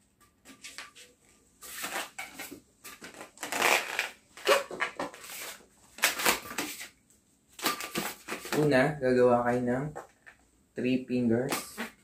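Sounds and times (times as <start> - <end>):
balloon squeaking against fingers: 3.1 - 5.0, 11.7 - 12.0.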